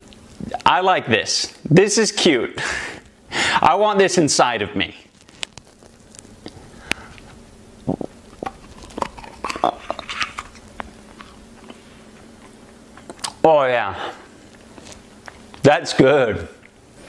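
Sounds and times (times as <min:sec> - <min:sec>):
man chewing and smacking: 0:07.2 - 0:13.4, 0:14.4 - 0:15.6.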